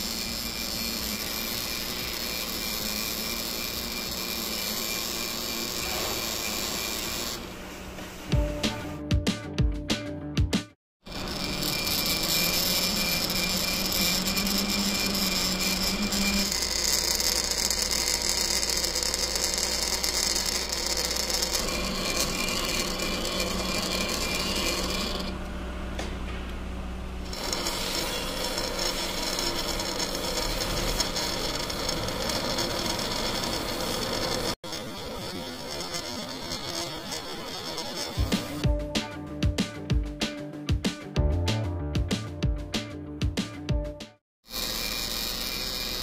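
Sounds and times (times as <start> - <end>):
metal lathe cutting thread: 0.0 - 7.6, 11.0 - 25.4, 27.2 - 38.6, 44.4 - 46.0.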